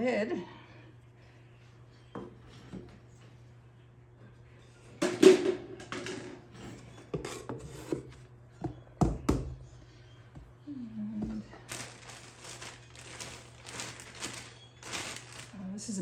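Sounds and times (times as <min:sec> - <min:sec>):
faint low hum: 0:00.0 - 0:16.0
hands knocking and tapping pottery wheel: 0:08.6 - 0:09.6.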